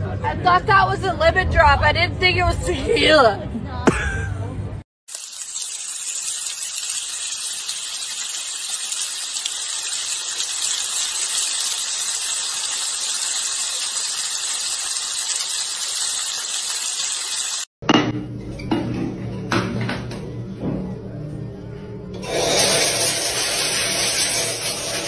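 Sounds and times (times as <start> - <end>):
loud sizzling hiss: 5.1 - 17.7.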